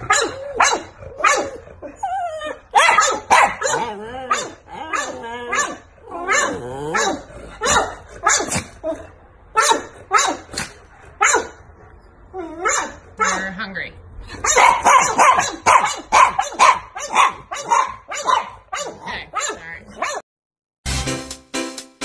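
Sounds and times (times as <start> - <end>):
dog barking: 0.0 - 1.6, 2.7 - 8.7, 9.5 - 10.5, 11.2 - 11.6, 12.6 - 13.5, 14.4 - 20.2
dog whining: 0.0 - 9.2.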